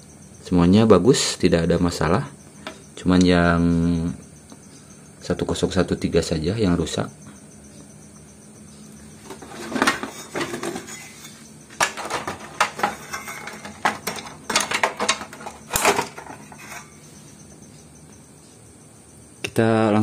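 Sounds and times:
metallic clinks and knocks: 0:09.2 - 0:17.7.

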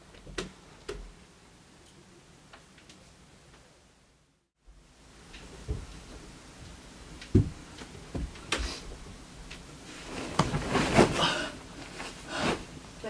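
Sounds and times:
bedding rustling: 0:05.0 - 0:13.0
dull thuds: 0:07.3 - 0:08.4.

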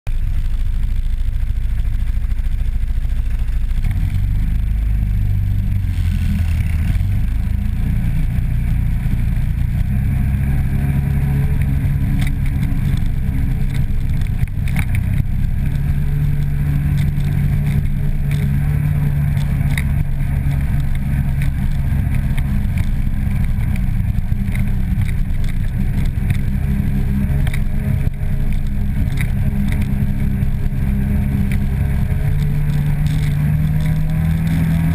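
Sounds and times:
atv engine running: 0:00.1 - 0:34.9
knocks and rattles over bumps: 0:06.5 - 0:34.9.

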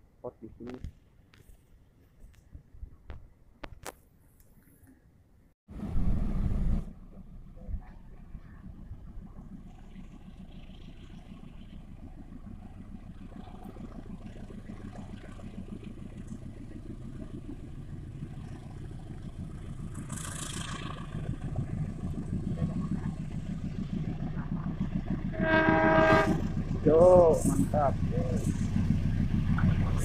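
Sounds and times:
locomotive rumble: 0:05.7 - 0:30.0.

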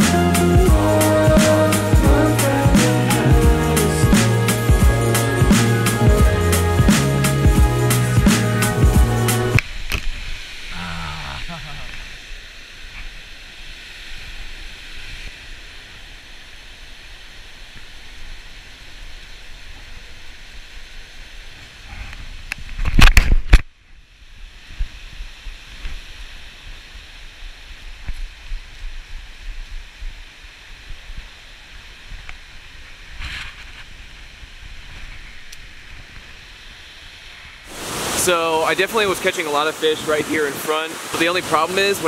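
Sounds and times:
water rushing down a spillway: 0:37.6 - 0:42.0.

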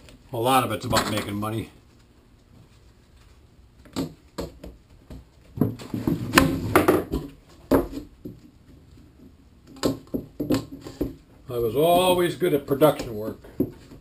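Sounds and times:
tubes and rods clacking on wood: 0:09.2 - 0:11.3.

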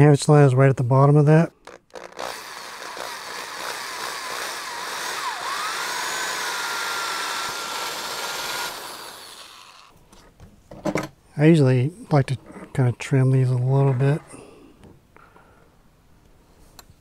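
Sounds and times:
power drill boring through plastic: 0:01.6 - 0:09.9.

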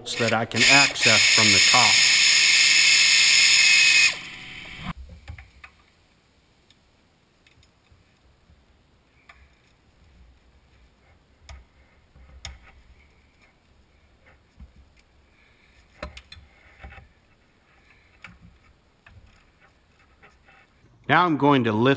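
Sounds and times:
power ratchet running: 0:00.2 - 0:04.9.

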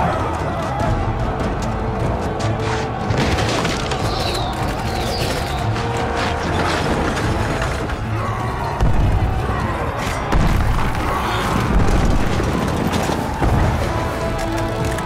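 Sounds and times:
dramatic music: 0:00.0 - 0:15.0
dense battle din: 0:06.0 - 0:15.0.

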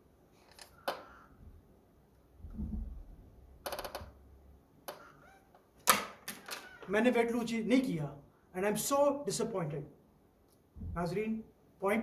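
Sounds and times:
brief low rumble: 0:02.4 - 0:03.2.

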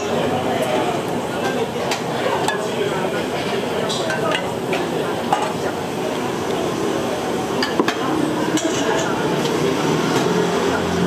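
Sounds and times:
kitchen and room hum: 0:00.0 - 0:11.0
utensils clinking against dishes: 0:01.4 - 0:05.7, 0:07.6 - 0:09.6.

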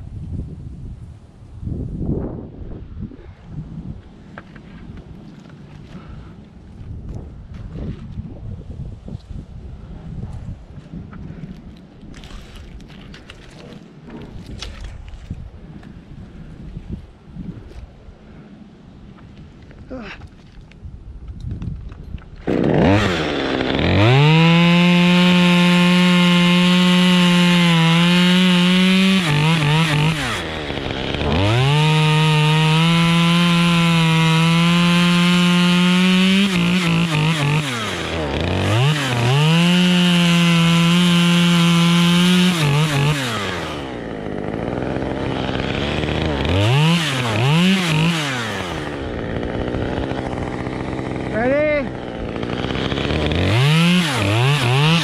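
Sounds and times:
chainsaw revving: 0:22.4 - 0:55.0.

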